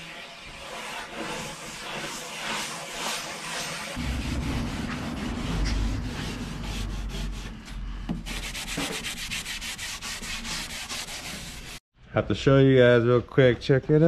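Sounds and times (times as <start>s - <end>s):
cloth rag rubbing on wood: 0.0s - 4.0s, 8.1s - 11.8s.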